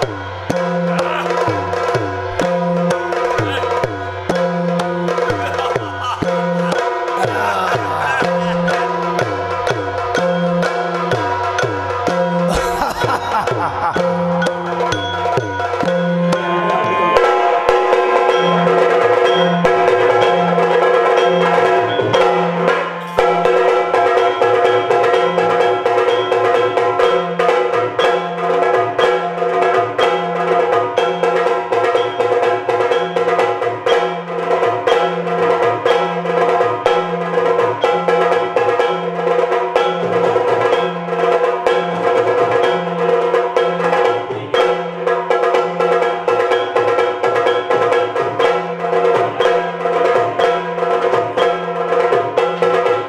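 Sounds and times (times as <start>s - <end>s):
fast dense drumming: 0.0s - 16.1s
low pulsing drum beat: 0.0s - 20.5s
steady held drone: 16.0s - 21.1s.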